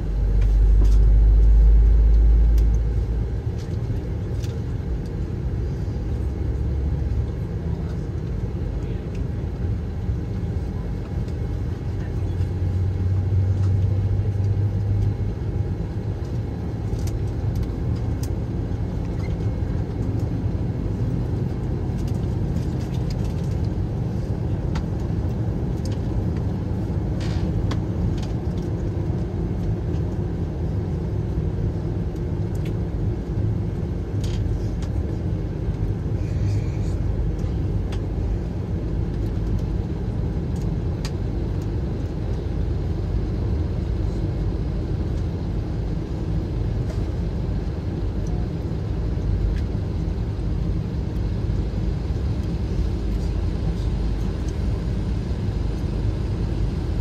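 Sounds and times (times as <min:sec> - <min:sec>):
hum: 0:00.0 - 0:07.8
aircraft cabin low rumble: 0:00.0 - 0:57.0.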